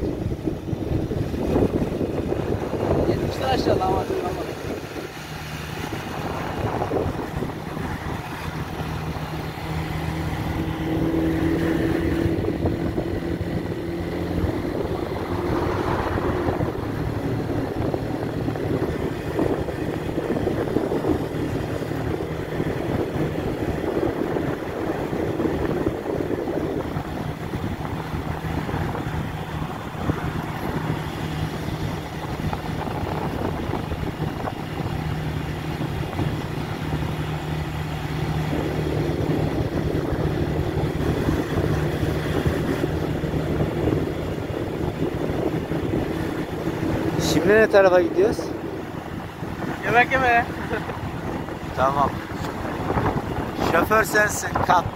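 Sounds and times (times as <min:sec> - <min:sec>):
motorcycle engine cruising: 0:00.0 - 0:54.9
wind and road noise: 0:00.0 - 0:54.9.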